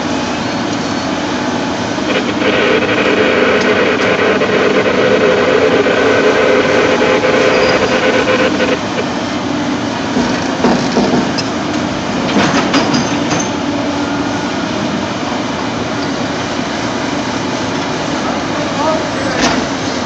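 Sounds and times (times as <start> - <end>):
excavator diesel engine: 0.0 - 20.0
steady high note: 2.0 - 9.2.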